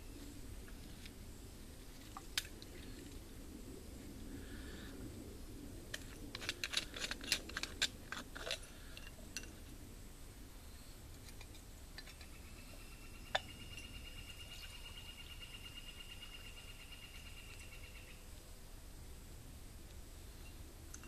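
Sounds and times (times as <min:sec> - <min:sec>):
insect trilling: 0:12.1 - 0:18.2.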